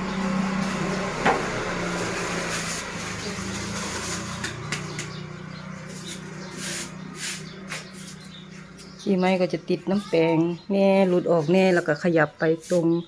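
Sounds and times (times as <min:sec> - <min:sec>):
bristle brush scratching: 0:05.9 - 0:08.3.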